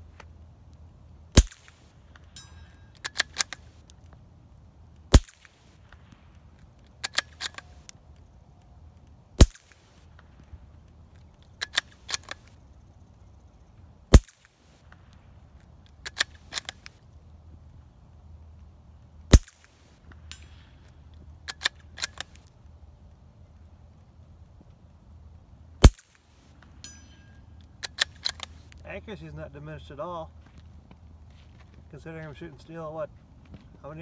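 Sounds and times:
suppressed rifle shots: 0:01.3 - 0:02.0, 0:05.1 - 0:06.2, 0:09.4 - 0:10.2, 0:14.1 - 0:15.1, 0:19.3 - 0:20.8, 0:25.8 - 0:26.4
rifle bolt clicking: 0:03.0 - 0:04.1, 0:06.6 - 0:08.0, 0:11.4 - 0:12.5, 0:16.0 - 0:17.0, 0:21.5 - 0:22.5, 0:27.8 - 0:28.8.

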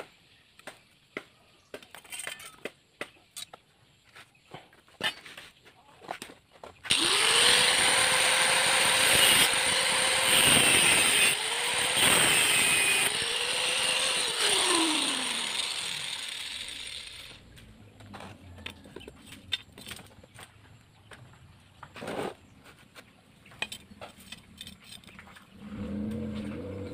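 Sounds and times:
angle grinder cutting metal: 0:06.9 - 0:17.4.

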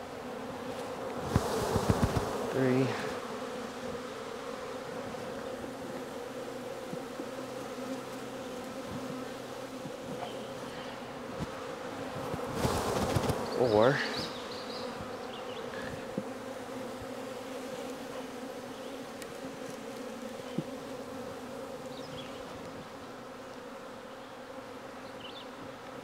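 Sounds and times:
bees buzzing: 0:00.0 - 0:26.0
hive tool knocking on wooden frames: 0:00.8 - 0:02.5, 0:06.8 - 0:07.2, 0:09.8 - 0:10.5.

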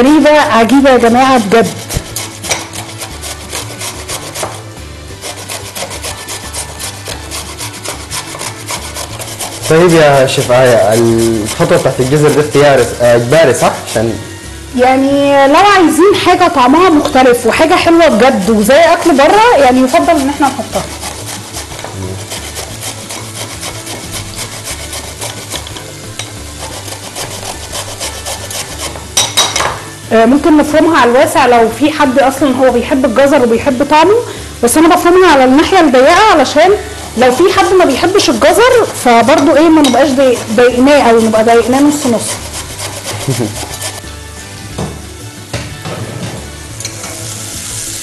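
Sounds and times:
carrot grating on metal grater: 0:01.0 - 0:14.2, 0:19.0 - 0:29.3, 0:37.3 - 0:44.1.

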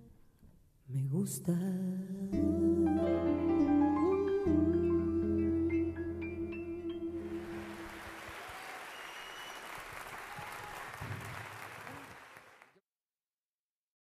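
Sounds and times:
audience applauding: 0:07.2 - 0:12.8.

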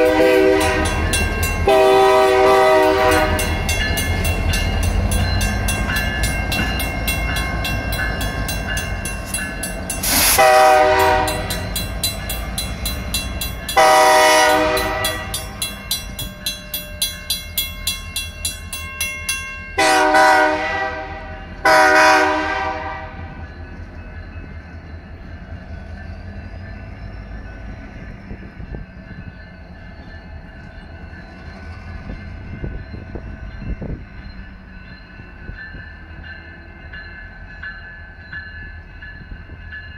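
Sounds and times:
locomotive horn: 0:00.0 - 0:03.6, 0:10.0 - 0:11.6, 0:13.8 - 0:15.5, 0:19.8 - 0:23.4
crossing bell ringing rapidly: 0:00.0 - 0:21.8, 0:22.8 - 0:39.9
diesel locomotives rumbling: 0:00.0 - 0:39.9.

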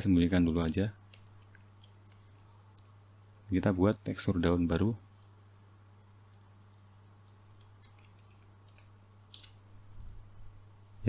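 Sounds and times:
low electrical hum: 0:00.0 - 0:11.0
computer mouse and keyboard clicks: 0:00.4 - 0:02.9, 0:04.7 - 0:05.3, 0:06.3 - 0:10.7.

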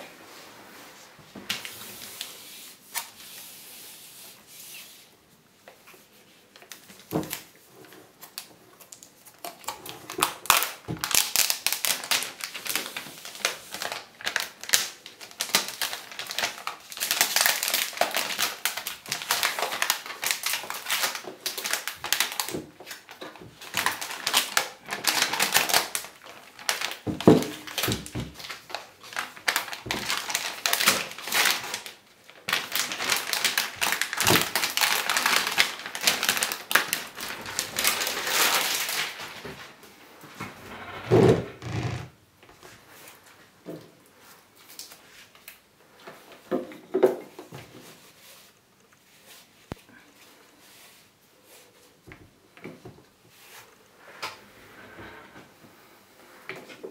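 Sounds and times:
plastic film crinkling: 0:06.0 - 0:39.8.

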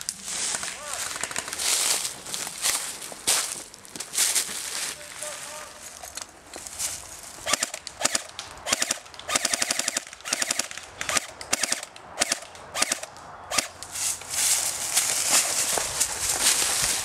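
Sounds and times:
airsoft rifle bursts: 0:07.4 - 0:13.7.

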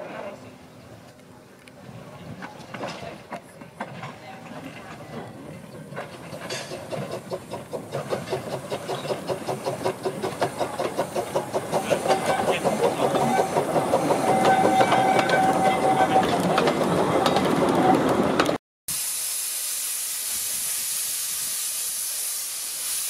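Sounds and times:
steam locomotive chuffing: 0:03.4 - 0:23.0
hiss of steam: 0:06.7 - 0:14.7, 0:18.9 - 0:23.0.

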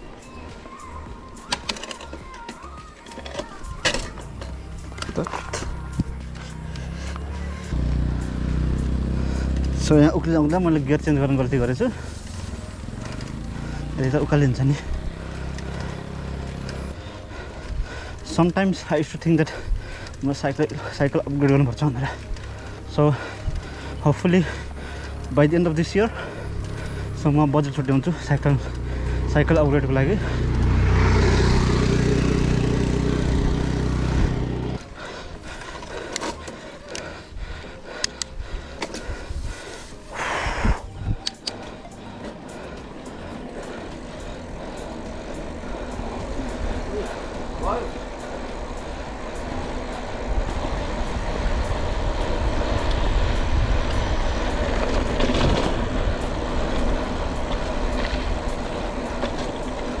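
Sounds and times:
motor traffic: 0:00.0 - 1:00.0
road noise: 0:00.0 - 1:00.0
vehicle engine droning: 0:03.4 - 1:00.0
sharp clicks: 0:38.0 - 0:39.0, 0:41.2 - 0:41.7
wind rumbling on microphone: 0:40.2 - 0:41.3, 0:45.7 - 1:00.0.

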